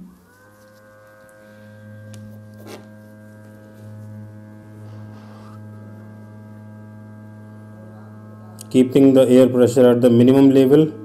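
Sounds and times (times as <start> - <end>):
hot-air blower humming: 0.0 - 11.0.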